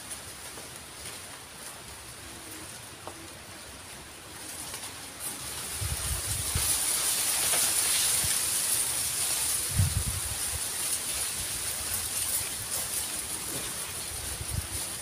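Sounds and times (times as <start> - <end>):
high-pitched outdoor hiss: 0.0 - 15.0
wind rumble on microphone: 5.6 - 6.9, 9.4 - 15.0.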